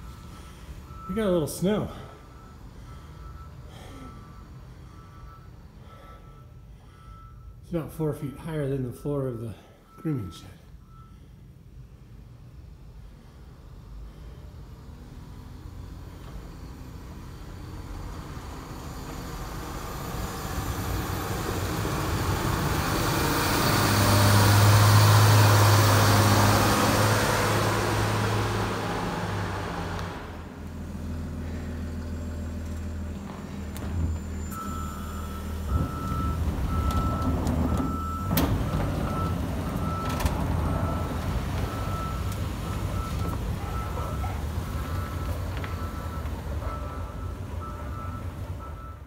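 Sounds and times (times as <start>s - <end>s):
backup alarm beeping: 0.0s - 11.3s, 34.0s - 49.0s
snowcat engine running: 13.1s - 49.0s.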